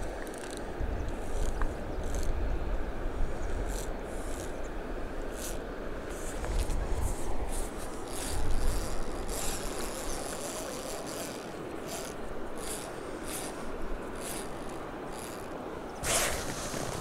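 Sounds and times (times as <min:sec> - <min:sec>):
fishing tackle scrapes and rustles: 0:05.3 - 0:17.0.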